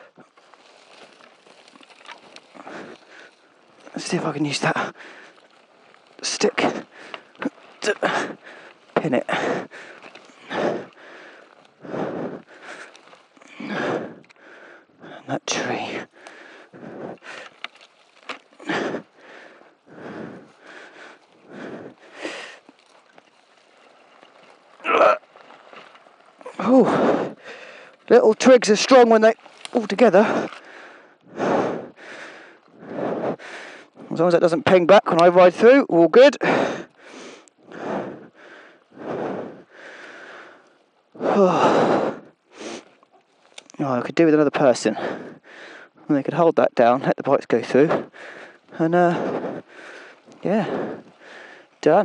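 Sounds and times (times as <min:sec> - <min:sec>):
heavy breathing: 0:00.0 - 0:01.3, 0:02.0 - 0:23.2, 0:25.9 - 0:34.2, 0:36.4 - 0:43.7, 0:44.7 - 0:46.1, 0:47.6 - 0:52.0
twigs snapping: 0:00.0 - 0:14.8, 0:16.0 - 0:19.8, 0:20.4 - 0:26.8, 0:27.4 - 0:31.3, 0:42.2 - 0:43.8.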